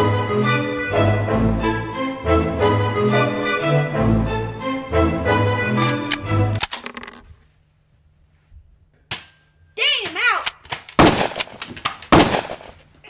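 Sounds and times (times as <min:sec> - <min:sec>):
gunshots: 0:10.7 - 0:12.8.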